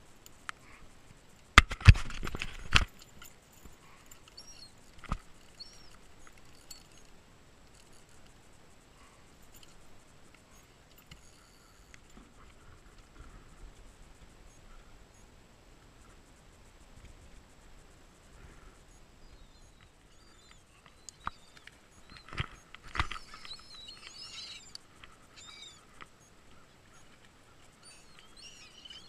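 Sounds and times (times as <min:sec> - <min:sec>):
light handling sounds: 0:00.1 - 0:14.8.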